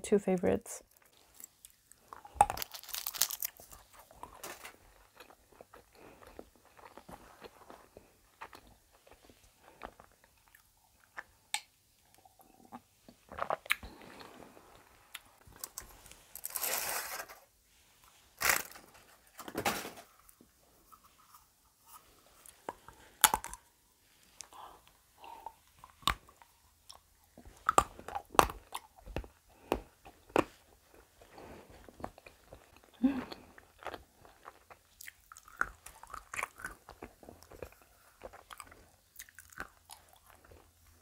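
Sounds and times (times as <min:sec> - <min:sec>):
chocolate crunching and chewing: 0:00.9 - 0:14.3, 0:20.9 - 0:41.0
chocolate snapping: 0:27.6 - 0:30.5.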